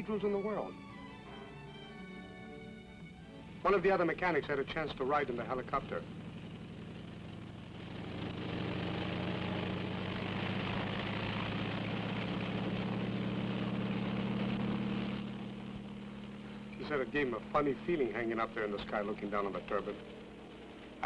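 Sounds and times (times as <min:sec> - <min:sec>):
helicopter engine and rotor drone: 0:00.0 - 0:08.8, 0:15.6 - 0:21.0.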